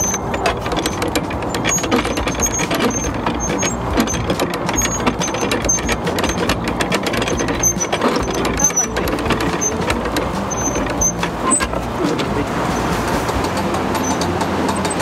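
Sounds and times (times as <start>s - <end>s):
ratchet clicking: 0.0s - 12.0s, 12.7s - 15.0s
steady rushing water: 11.2s - 15.0s.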